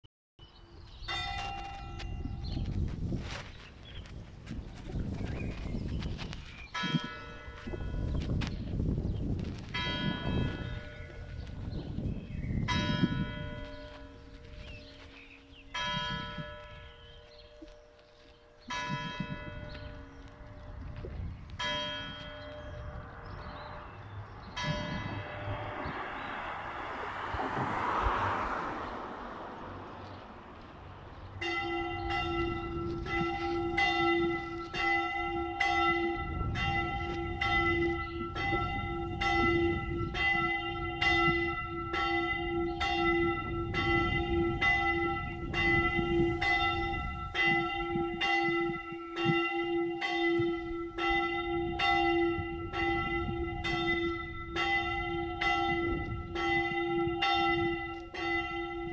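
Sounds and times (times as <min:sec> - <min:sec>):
church bell ringing: 0:01.0 - 0:02.6, 0:06.8 - 0:08.2, 0:09.7 - 0:11.9, 0:12.6 - 0:20.8, 0:21.6 - 0:27.0, 0:31.3 - 0:58.9
rushing noise: 0:23.1 - 0:30.0.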